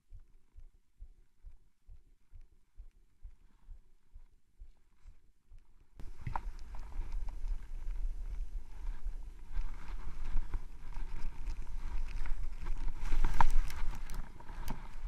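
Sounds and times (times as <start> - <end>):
ski gear clicks and knocks: 6.0 - 15.0.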